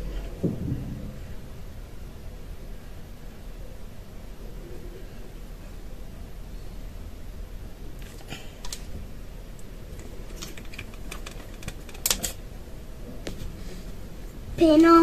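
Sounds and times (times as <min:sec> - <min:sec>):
plastic containers clicking: 0:10.3 - 0:12.4.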